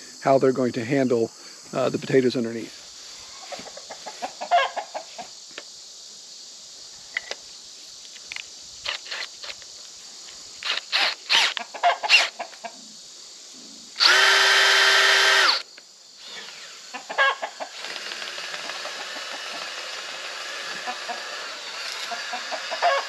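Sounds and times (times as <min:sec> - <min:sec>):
chickens clucking: 0:03.3 - 0:05.3, 0:11.6 - 0:12.9, 0:16.9 - 0:17.8, 0:22.1 - 0:23.0
cordless drill motor running: 0:10.6 - 0:12.3, 0:14.0 - 0:16.9, 0:17.7 - 0:23.0.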